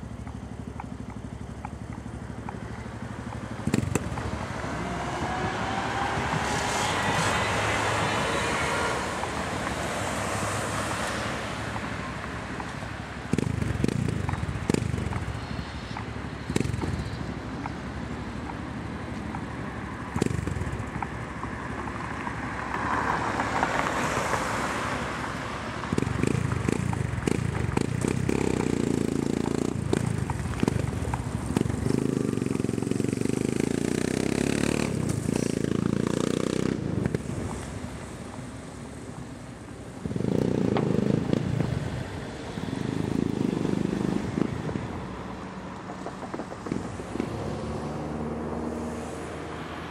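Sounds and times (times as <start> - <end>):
motorcycle exhaust bangs: 0.0 - 4.6, 13.2 - 17.8, 25.9 - 37.6
motorcycle engine revving: 0.0 - 11.0, 13.1 - 18.3, 19.8 - 21.3, 25.8 - 37.6, 40.0 - 42.0, 42.6 - 44.8.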